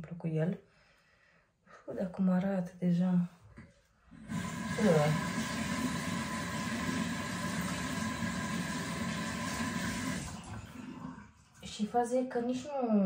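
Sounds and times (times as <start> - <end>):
pad rinsed under water: 4.2 - 11.7
tap water running into sink: 4.2 - 11.7.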